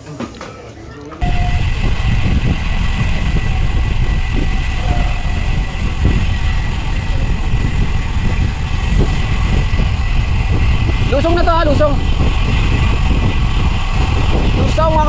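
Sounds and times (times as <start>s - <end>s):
faint high tone: 1.2s - 1.6s, 4.8s - 5.9s
wind rushing over microphone: 1.2s - 15.0s.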